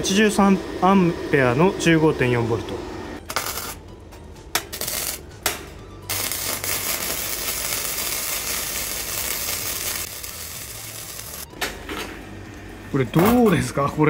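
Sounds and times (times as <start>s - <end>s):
welding arc crackling and sizzling: 3.2s - 3.8s, 4.6s - 5.4s, 6.0s - 11.5s.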